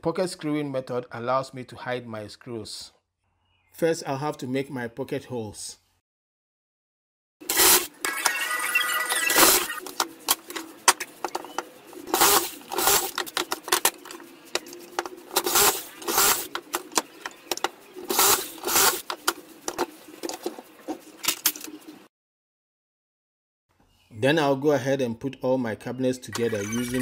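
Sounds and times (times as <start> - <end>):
cordless drill bursts: 7.5 - 7.9, 12.2 - 13.1, 15.4 - 16.5, 18.1 - 19.0.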